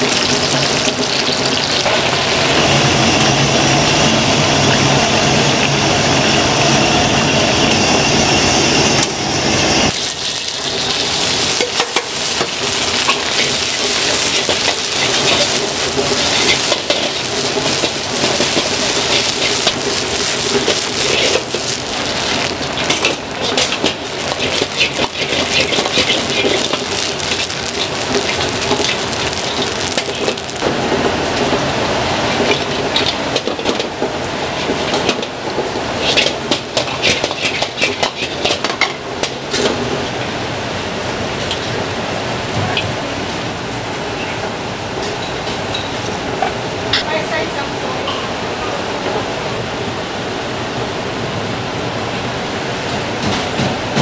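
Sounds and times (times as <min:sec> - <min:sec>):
fish deep-frying in hot oil: 0:00.0 - 0:05.7, 0:09.9 - 0:31.6, 0:32.2 - 0:39.7
metal ladle scraping a wok: 0:10.0 - 0:30.6.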